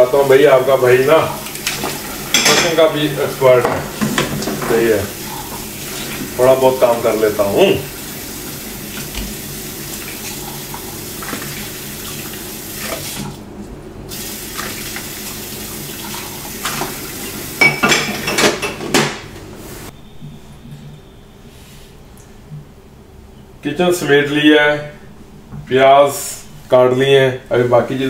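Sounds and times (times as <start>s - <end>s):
dishes clinking and clattering: 1.6s - 3.0s, 3.6s - 5.5s, 17.6s - 19.3s
tap running into a sink: 3.6s - 5.0s, 8.9s - 9.4s.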